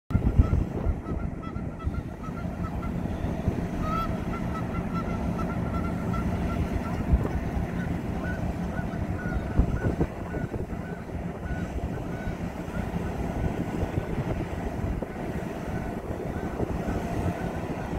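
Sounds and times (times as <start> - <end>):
rapid high honking calls: 0.1 - 13.6
steady low rumble: 0.1 - 17.9.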